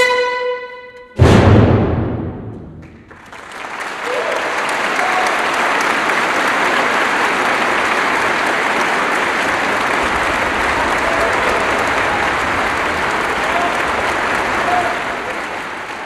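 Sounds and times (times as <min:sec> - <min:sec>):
bass drum hit: 0:01.2 - 0:03.1
audience applause: 0:02.8 - 0:16.0.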